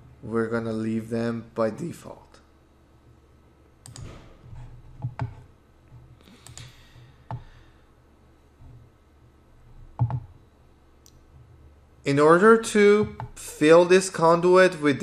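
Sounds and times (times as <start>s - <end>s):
computer mouse clicks: 3.8s - 7.4s, 9.9s - 10.3s.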